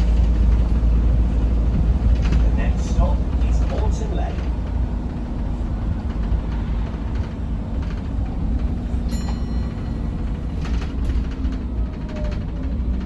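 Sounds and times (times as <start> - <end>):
bus diesel engine rumble: 0.0 - 13.0
light rattles: 0.0 - 13.0
road noise: 0.0 - 13.0
ringing clink: 9.1 - 10.2.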